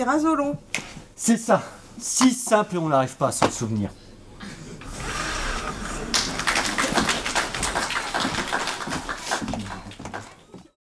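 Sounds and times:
audience applauding: 0:04.9 - 0:10.7.

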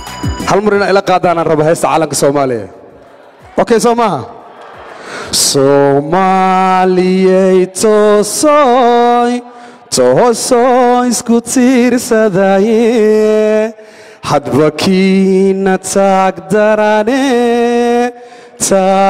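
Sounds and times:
man singing unaccompanied: 0:05.4 - 0:19.0.

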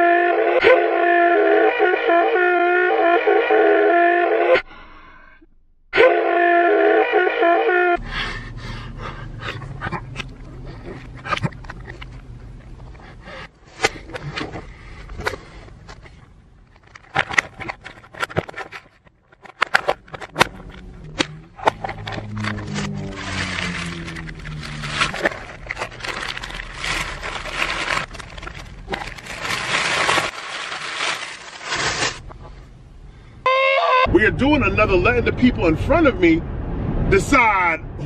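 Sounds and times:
plastic clamshell crackling: 0:16.8 - 0:32.3.

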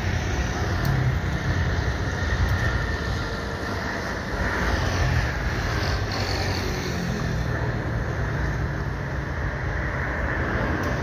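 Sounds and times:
jet engines at takeoff: 0:00.0 - 0:11.0.

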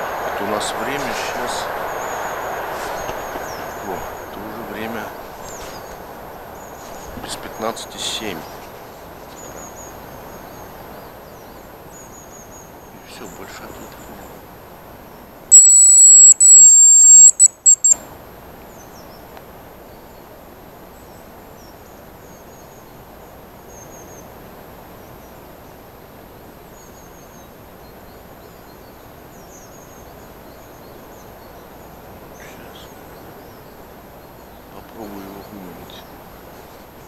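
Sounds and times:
distant bird chirps: 0:00.0 - 0:14.4, 0:15.5 - 0:18.1
high decoy whistle: 0:15.5 - 0:18.0.

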